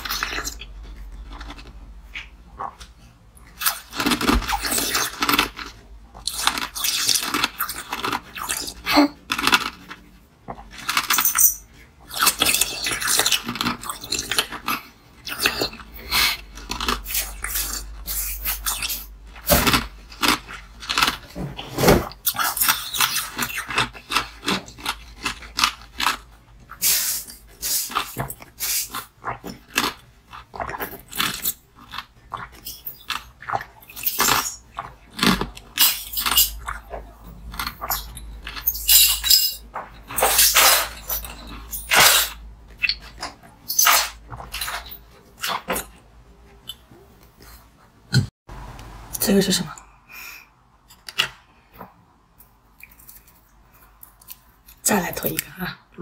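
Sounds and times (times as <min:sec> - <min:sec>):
ice crunching being chewed: 0:12.0 - 0:21.4, 0:22.2 - 0:38.9.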